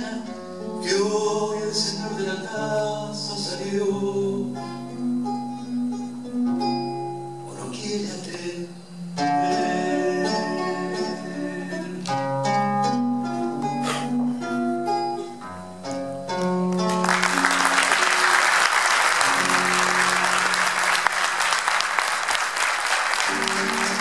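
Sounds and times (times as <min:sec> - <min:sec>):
acoustic guitar picking: 0:00.0 - 0:17.7, 0:19.2 - 0:20.8, 0:23.1 - 0:24.0
applause: 0:16.4 - 0:24.0.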